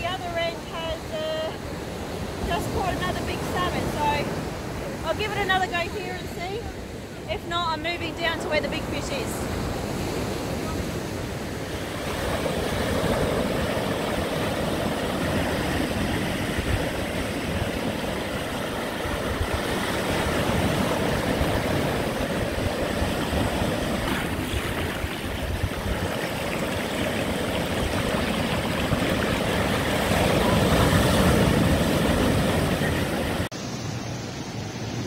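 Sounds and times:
ocean surf breaking: 0.0s - 35.0s.

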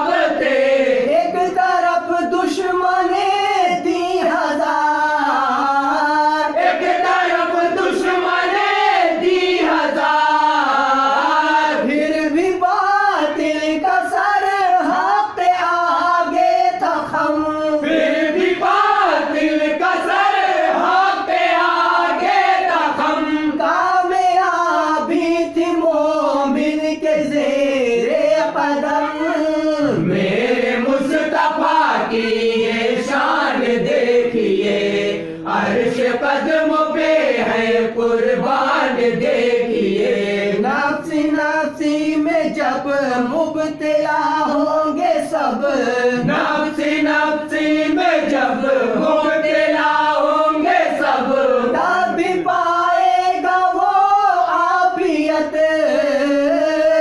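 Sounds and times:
voices chanting melodically: 0.0s - 1.4s, 5.2s - 12.4s, 17.7s - 24.0s, 27.8s - 41.4s, 46.1s - 54.2s.

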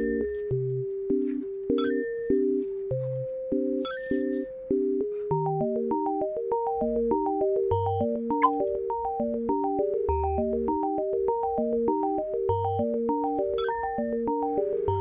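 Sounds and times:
synthesizer tune with bass line: 5.8s - 15.0s.

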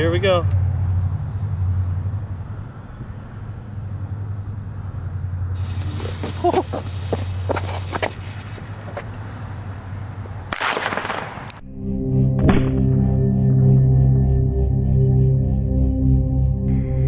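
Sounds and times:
steady low hum: 0.0s - 10.5s
firecracker fuse hissing: 5.5s - 11.5s
sharp crackles: 5.6s - 11.6s.

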